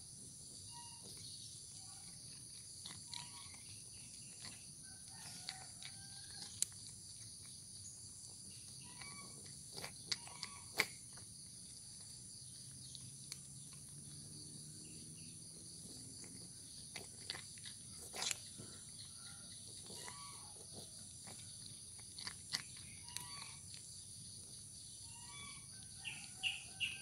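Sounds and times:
cat crunching dry kibble: 0:00.0 - 0:27.0
faint bird chirps: 0:00.5 - 0:02.4.

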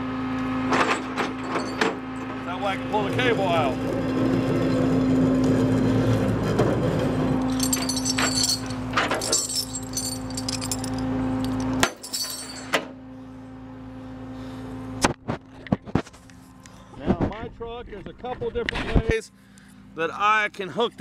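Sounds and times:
truck engine hum: 0:00.0 - 0:17.0
chain clinking and jangling: 0:01.0 - 0:01.9, 0:07.4 - 0:12.7.

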